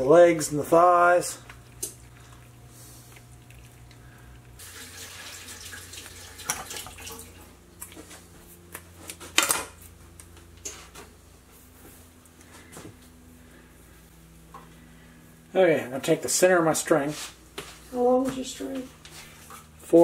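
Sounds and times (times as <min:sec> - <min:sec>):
steady low hum: 0:00.0 - 0:04.9, 0:05.6 - 0:20.0
running water: 0:00.8 - 0:07.6.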